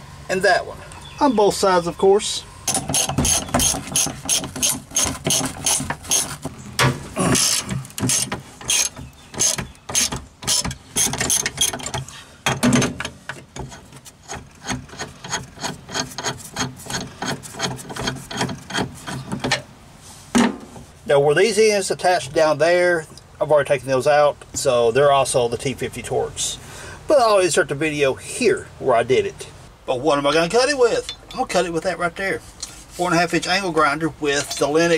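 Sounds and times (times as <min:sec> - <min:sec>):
hand ratchet clicking: 0:02.7 - 0:06.3.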